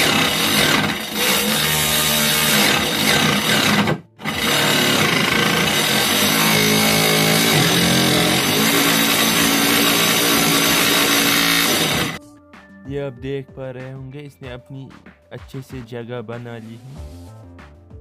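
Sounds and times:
table saw cutting plywood: 0.0 - 12.2.

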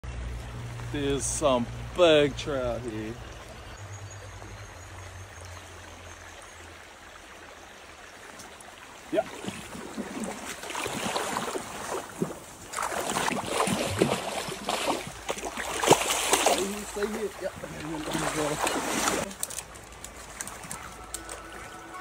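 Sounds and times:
stream running: 0.0 - 22.0
splashing in shallow water: 6.7 - 22.0.

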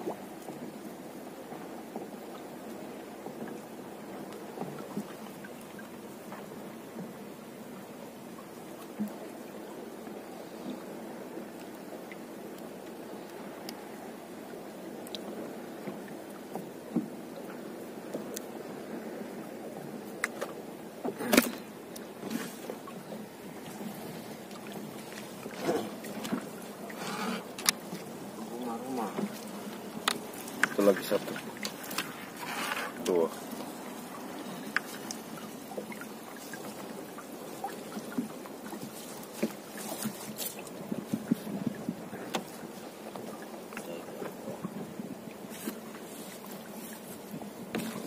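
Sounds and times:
water washing around a boat: 0.0 - 48.0.

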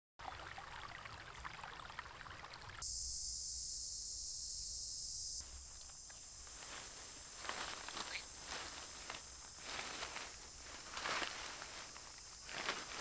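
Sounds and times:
high-pitched insect drone: 2.8 - 13.0
small chirps and ticks: 7.4 - 12.9.

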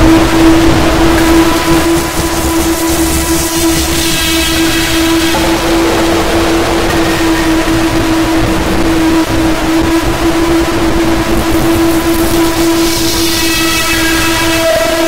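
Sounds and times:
loud noise bed: 0.0 - 15.0
steady synthesized tone: 0.0 - 15.0
faint higher tones: 5.3 - 9.5.

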